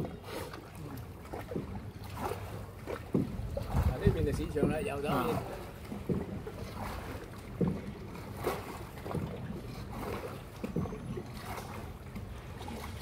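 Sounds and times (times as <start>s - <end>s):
boat engine low rumble: 0.0s - 13.0s
water splashing against hull: 0.0s - 13.0s.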